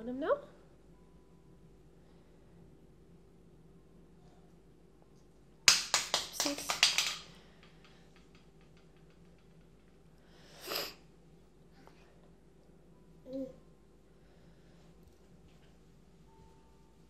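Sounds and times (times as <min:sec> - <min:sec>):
plastic toy clattering on tile: 0:06.1 - 0:09.9.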